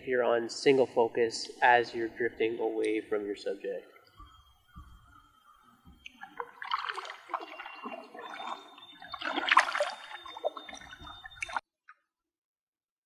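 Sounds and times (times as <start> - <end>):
paddle splashing water: 5.9 - 11.6.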